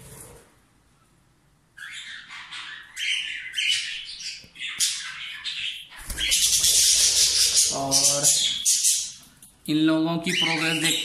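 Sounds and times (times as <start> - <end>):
cockatiels squawking: 1.8 - 9.2.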